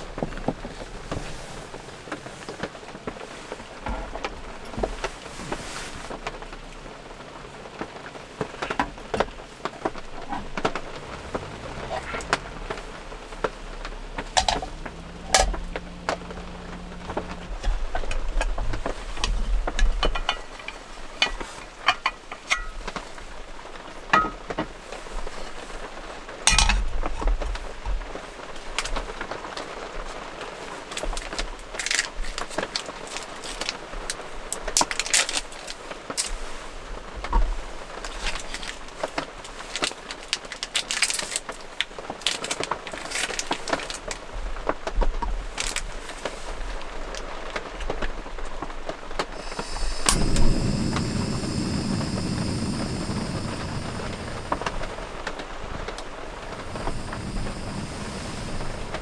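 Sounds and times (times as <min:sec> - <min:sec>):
rain pattering on camper: 0:00.0 - 0:59.0
brief low hum: 0:11.1 - 0:19.2, 0:49.4 - 0:59.0.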